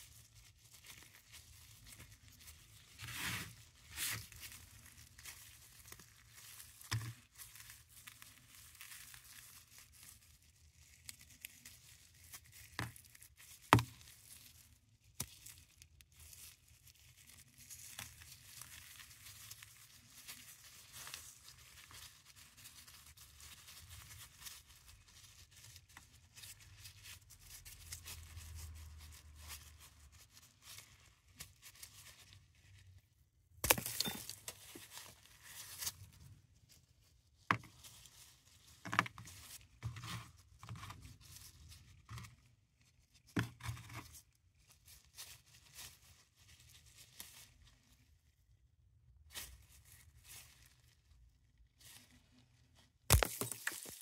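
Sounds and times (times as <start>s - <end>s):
tablets crunching in gloved hands: 33.6s - 34.6s, 53.1s - 54.0s.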